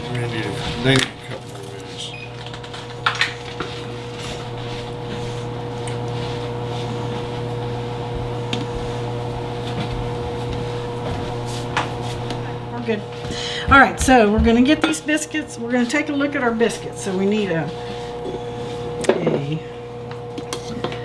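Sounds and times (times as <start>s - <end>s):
kitchen appliance humming: 0.0s - 21.0s.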